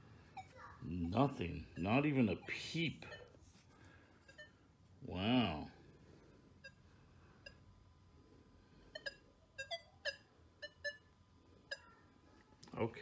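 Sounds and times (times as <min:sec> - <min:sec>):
metal detector beeps: 0:03.0 - 0:03.3, 0:08.9 - 0:11.1.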